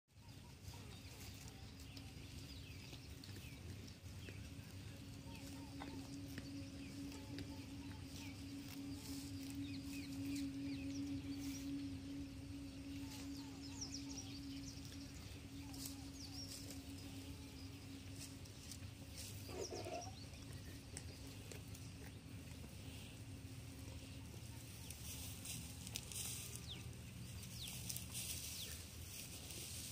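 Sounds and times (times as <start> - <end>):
small birds chirping: 0.2 - 29.9
steady low hum: 0.2 - 29.9
animal call: 4.7 - 21.1.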